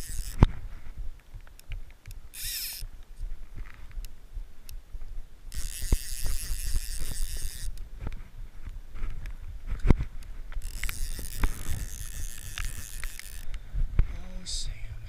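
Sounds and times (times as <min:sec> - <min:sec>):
fishing reel clicker buzzing: 0:00.0 - 0:00.5, 0:02.0 - 0:02.9, 0:05.5 - 0:07.8, 0:10.6 - 0:13.6
wind rumble on camera: 0:03.1 - 0:15.0.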